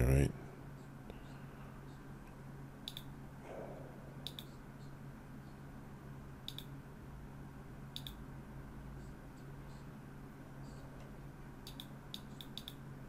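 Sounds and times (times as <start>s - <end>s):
computer mouse clicking: 2.8s - 3.1s, 4.2s - 4.5s, 6.5s - 6.7s, 7.9s - 8.2s, 11.6s - 12.8s.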